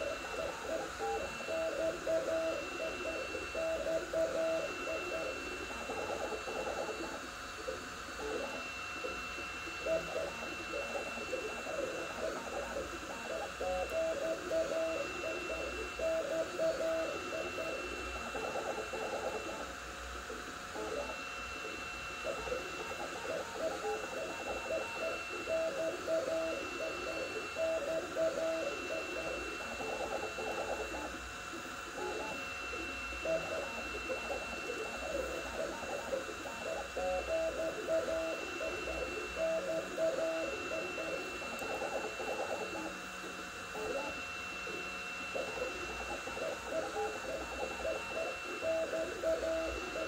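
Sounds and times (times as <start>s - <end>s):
steady high whine: 0.0s - 50.0s
stepper motors singing: 0.0s - 50.0s.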